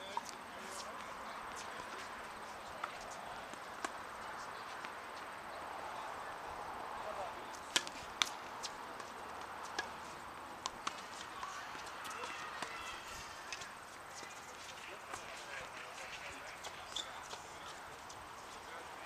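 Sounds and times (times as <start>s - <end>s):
steady outdoor hiss: 0.0s - 19.0s
tennis ball struck and bouncing: 3.5s - 4.0s, 7.6s - 10.0s.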